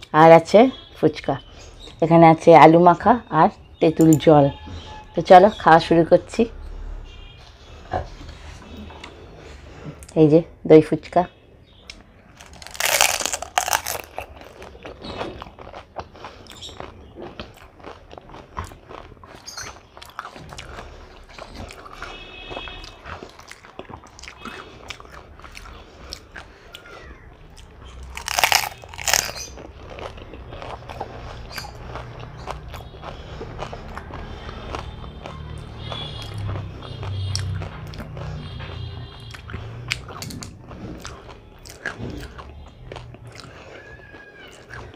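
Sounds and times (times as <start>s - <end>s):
wet chewing: 11.8s - 44.9s
crisp shells crunching when bitten: 12.3s - 20.7s, 27.6s - 34.9s.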